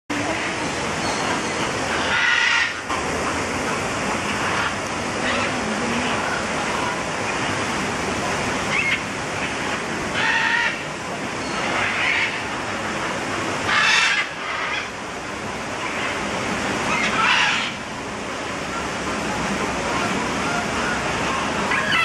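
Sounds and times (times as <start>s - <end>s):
steady rushing noise: 0.1s - 21.8s
parrots squawking: 0.3s - 2.8s, 4.2s - 7.0s, 8.7s - 12.4s, 13.7s - 14.9s, 16.9s - 17.8s, 19.9s - 22.0s.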